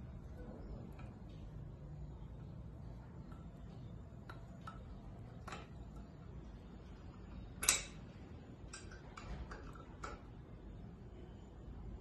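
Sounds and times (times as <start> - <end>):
metallic clicks of wrench and bolts: 7.4 - 8.0.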